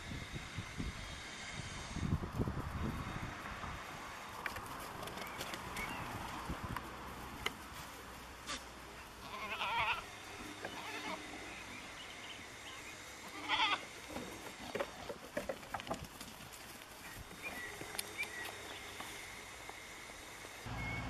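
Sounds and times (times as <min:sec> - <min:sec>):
goats bleating: 0:09.2 - 0:11.5, 0:13.2 - 0:14.4.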